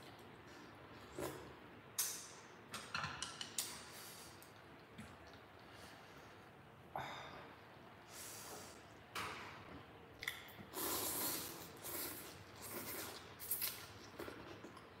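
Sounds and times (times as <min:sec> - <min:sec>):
slurping noodles: 0:10.7 - 0:13.8.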